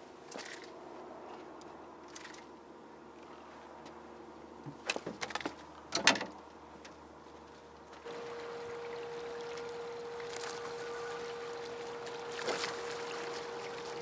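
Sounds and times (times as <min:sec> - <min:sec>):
faint steady hum: 0:05.6 - 0:14.0.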